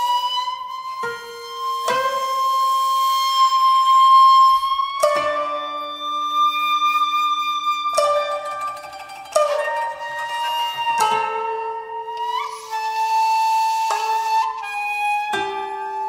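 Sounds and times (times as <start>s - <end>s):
flute long held notes: 0.0s - 8.2s, 9.8s - 16.0s
plucked strings: 4.3s - 12.6s.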